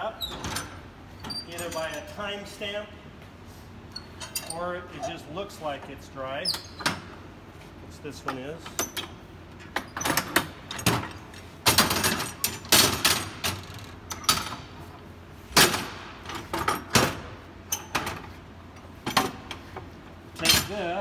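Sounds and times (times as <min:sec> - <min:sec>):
metal pipe clamps clanking: 0:00.5 - 0:02.2, 0:04.1 - 0:05.2.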